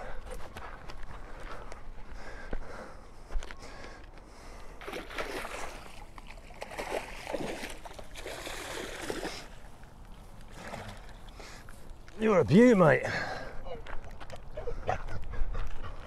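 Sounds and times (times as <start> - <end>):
fish thrashing and splashing in water: 4.8 - 9.6, 10.5 - 11.3.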